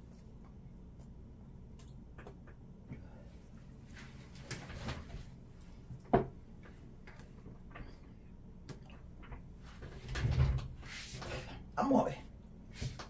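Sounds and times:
faint clicks and taps: 0:00.1 - 0:03.1, 0:05.9 - 0:09.5.

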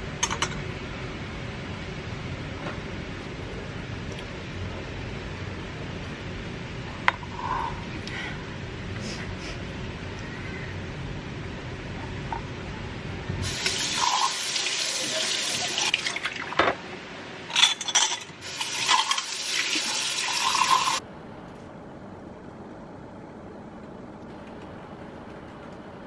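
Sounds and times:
steady hum: 0:00.0 - 0:26.0
tap water running into sink: 0:13.4 - 0:16.6, 0:18.4 - 0:21.0.

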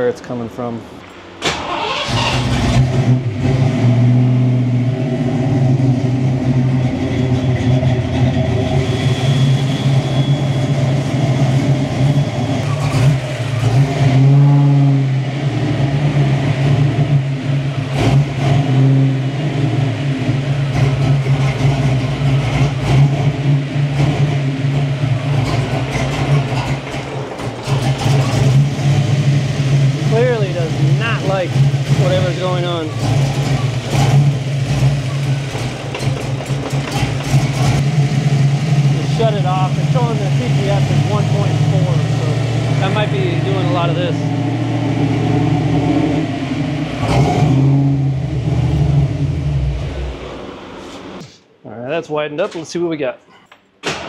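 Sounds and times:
car engine idling unevenly: 0:04.7 - 0:47.2.

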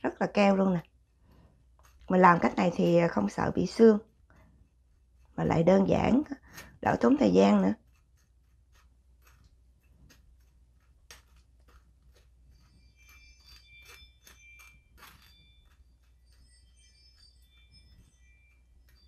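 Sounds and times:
faint high bell-like tones: 0:12.2 - 0:19.0.

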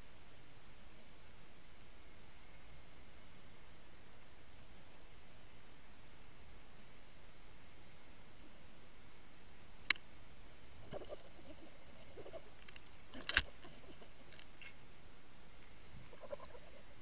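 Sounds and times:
sharp clicks: 0:12.6 - 0:13.6.

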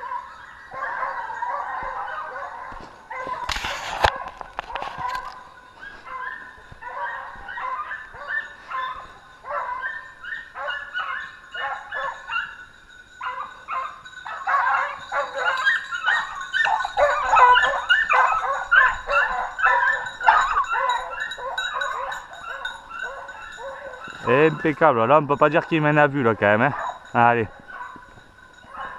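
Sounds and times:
pack of hounds baying: 0:00.0 - 0:28.9.

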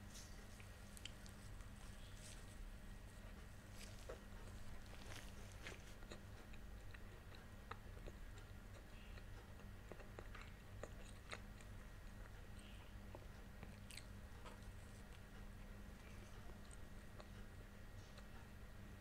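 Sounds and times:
faint low hum: 0:00.0 - 0:19.0
chewing with mouth clicks: 0:00.1 - 0:18.7
biting into bread: 0:03.7 - 0:11.7.

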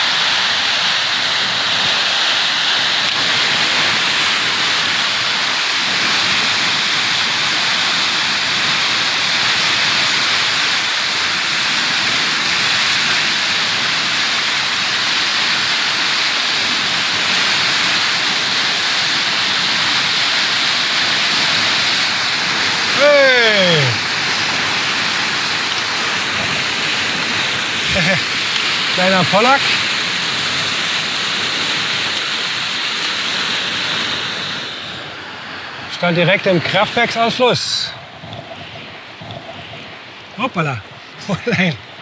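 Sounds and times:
water rushing from sluice: 0:00.0 - 0:42.0.

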